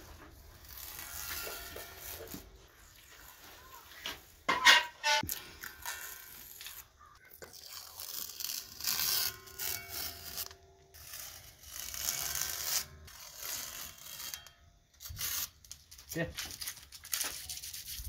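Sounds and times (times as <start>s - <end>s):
tape peeling off: 5.0s - 18.0s.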